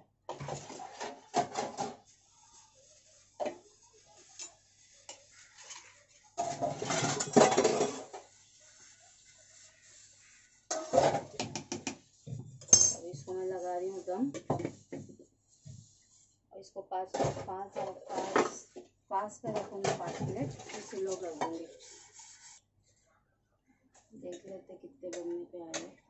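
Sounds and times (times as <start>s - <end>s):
ladle scraping cooking pot: 4.2s - 8.3s, 17.8s - 18.7s, 19.5s - 22.6s.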